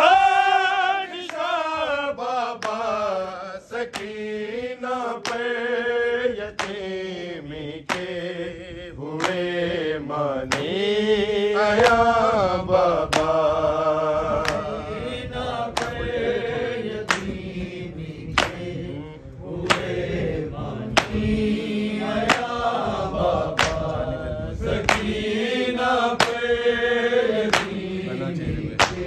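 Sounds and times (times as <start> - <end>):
men chanting together: 0.0 - 29.0
hand-on-chest slaps: 1.2 - 1.6, 2.6 - 3.0, 3.8 - 4.3, 5.2 - 5.6, 6.4 - 7.0, 7.8 - 8.2, 9.1 - 9.6, 10.5 - 10.8, 11.8 - 12.1, 13.0 - 13.5, 14.4 - 14.8, 15.7 - 16.2, 17.0 - 17.4, 18.3 - 18.7, 19.6 - 20.0, 21.0 - 21.4, 22.1 - 22.6, 23.5 - 24.0, 24.8 - 25.3, 26.2 - 26.5, 27.4 - 27.8, 28.8 - 29.0.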